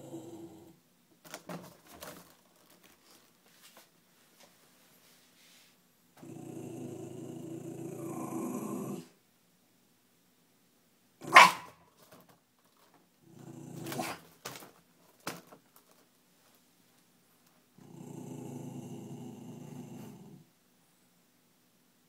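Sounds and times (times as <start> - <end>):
dog growling: 0.0 - 0.8, 6.2 - 9.2, 13.2 - 14.2, 17.8 - 20.5
dog barking: 11.2 - 11.8
dog yipping: 11.2 - 11.8.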